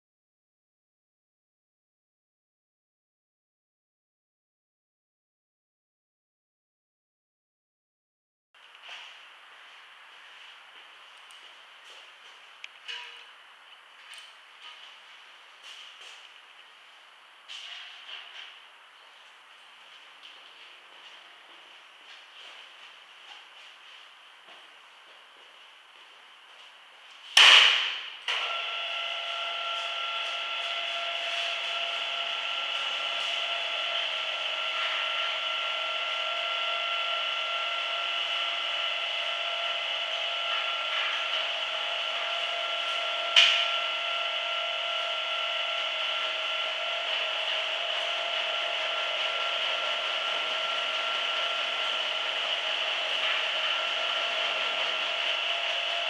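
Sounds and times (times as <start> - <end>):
sharp knock: 27.4 - 28.1
rug beating machine whirring: 28.3 - 56.0.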